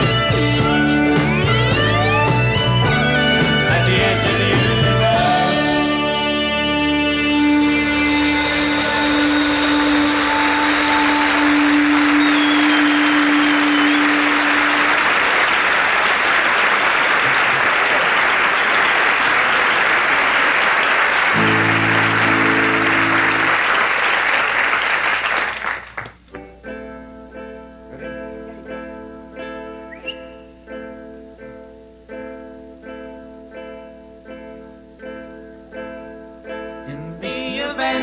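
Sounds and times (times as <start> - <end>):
picked guitar: 0.0 - 14.8, 21.3 - 23.8, 26.0 - 38.0
short chord: 0.5 - 13.1, 21.4 - 23.6
audience applauding: 8.5 - 26.2.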